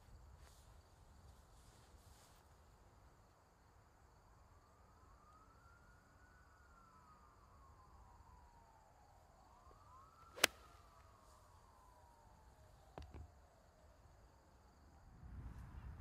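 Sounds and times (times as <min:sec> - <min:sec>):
faint siren wailing: 0:04.3 - 0:16.0
sharp crack: 0:10.4 - 0:10.7.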